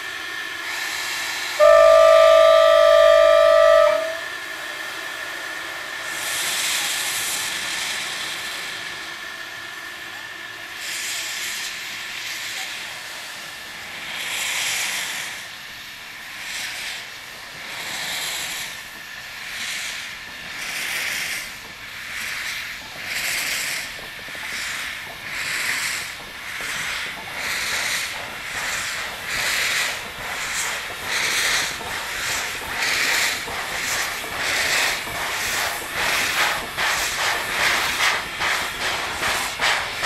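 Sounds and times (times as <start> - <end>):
steam locomotive chuffing: 0.0 - 40.0.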